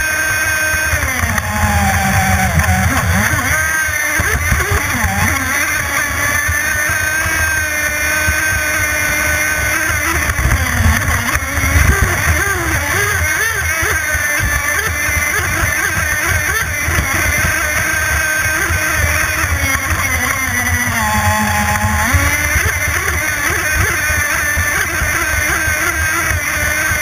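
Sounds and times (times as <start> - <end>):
boat engine racing: 0.0 - 27.0.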